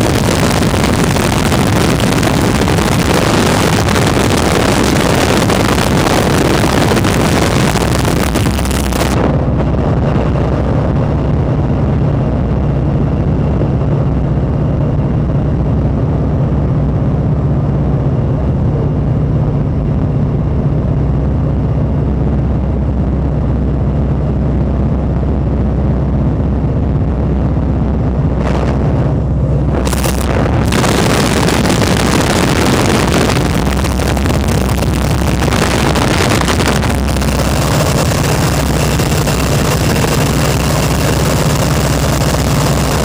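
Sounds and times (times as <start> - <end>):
airplane engine droning: 0.0 - 43.0
wind rushing: 27.9 - 40.6.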